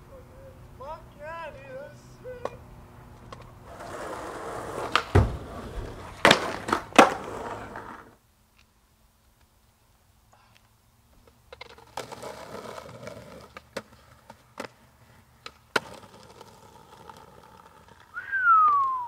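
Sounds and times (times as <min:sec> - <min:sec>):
skateboard wheels rolling on concrete: 0:00.0 - 0:19.0
skateboard clacking: 0:03.2 - 0:08.2, 0:11.2 - 0:19.0
loud falling high tone: 0:18.2 - 0:19.0.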